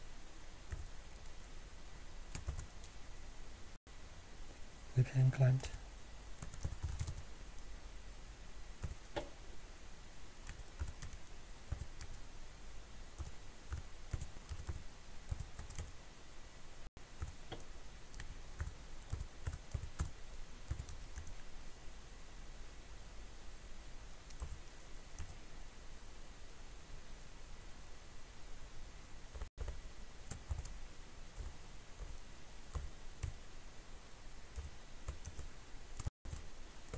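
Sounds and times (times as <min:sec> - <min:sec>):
computer keyboard typing: 0:00.7 - 0:01.0, 0:02.3 - 0:02.9, 0:06.4 - 0:07.3, 0:08.8 - 0:09.0, 0:10.4 - 0:12.2, 0:13.2 - 0:15.9, 0:17.2 - 0:21.4, 0:24.3 - 0:24.6, 0:25.2 - 0:25.4, 0:29.3 - 0:30.8, 0:34.6 - 0:36.5.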